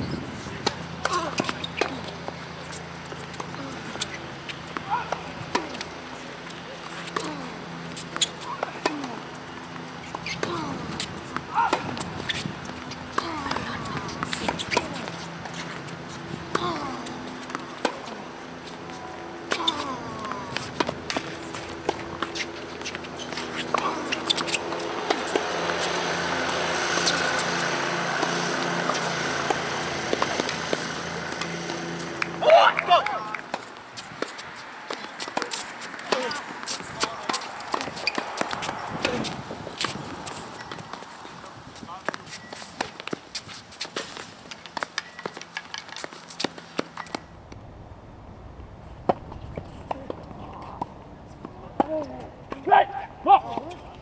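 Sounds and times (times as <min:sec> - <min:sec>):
engine running: 0:00.3 - 0:33.9
tennis balls struck by rackets: 0:00.4 - 0:47.6.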